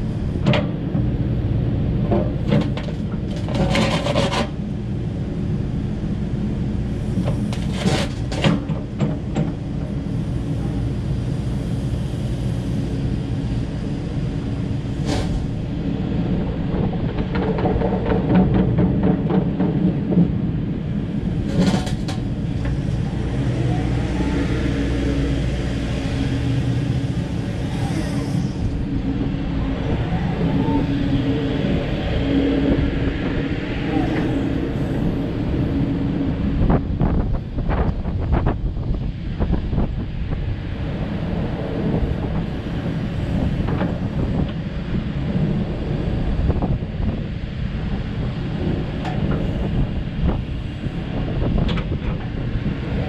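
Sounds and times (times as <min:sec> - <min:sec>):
excavator diesel engine running: 0:00.0 - 0:38.9
wind buffeting microphone: 0:00.0 - 0:53.0.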